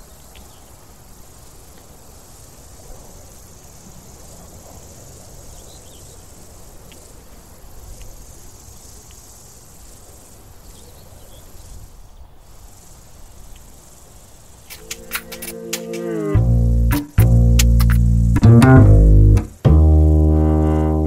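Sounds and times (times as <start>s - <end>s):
insects chirring: 0.0s - 21.0s
low rumble: 16.3s - 19.4s.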